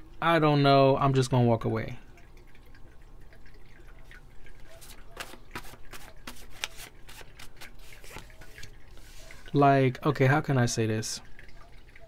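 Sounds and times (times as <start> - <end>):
cards clicking in hands: 5.2 - 8.5.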